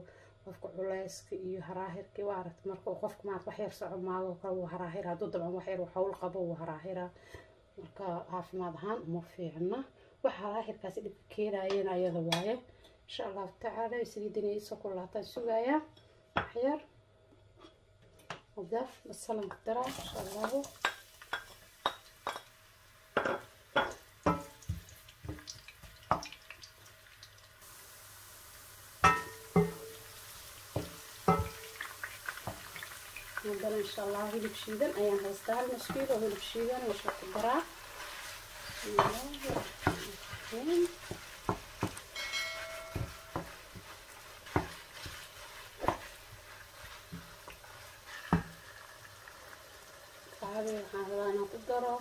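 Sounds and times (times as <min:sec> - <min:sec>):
meat sizzling: 0:19.8 - 0:52.0
spatula knocks and onion plops: 0:19.9 - 0:22.5, 0:23.2 - 0:26.7, 0:28.9 - 0:48.6.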